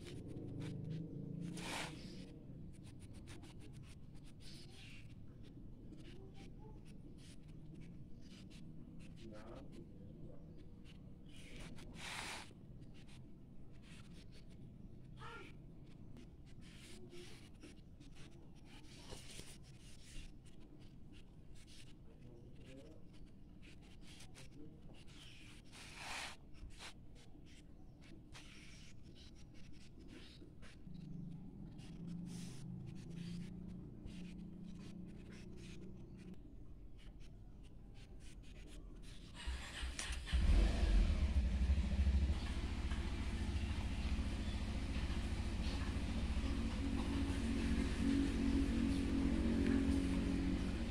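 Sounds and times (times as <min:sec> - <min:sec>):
oil pastel scratching paper: 0:00.0 - 0:50.9
low engine hum: 0:39.4 - 0:50.9
loud motor vehicle rumble: 0:39.7 - 0:50.9.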